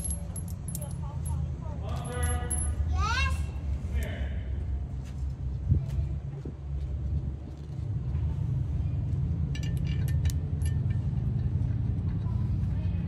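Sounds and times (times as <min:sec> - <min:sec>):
engine rumbling: 0:00.0 - 0:13.0
light metallic clinks: 0:09.5 - 0:11.5.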